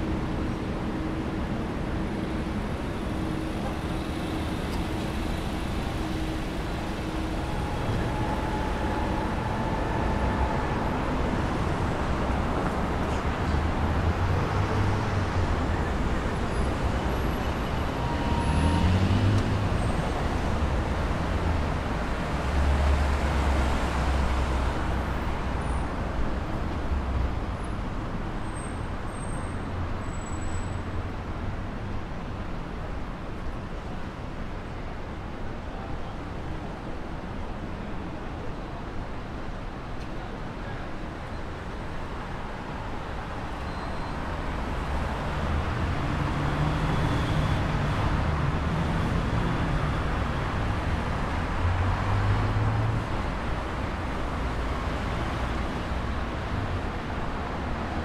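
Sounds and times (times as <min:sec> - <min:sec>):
cars passing: 0:00.0 - 0:25.6, 0:44.3 - 0:58.0.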